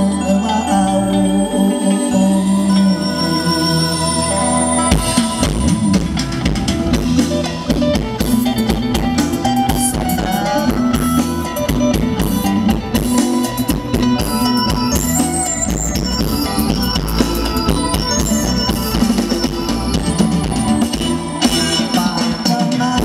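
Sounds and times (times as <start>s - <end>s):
held instrumental notes: 0.0s - 22.8s
guitar: 0.0s - 23.0s
drum kit steady beat: 4.9s - 23.0s.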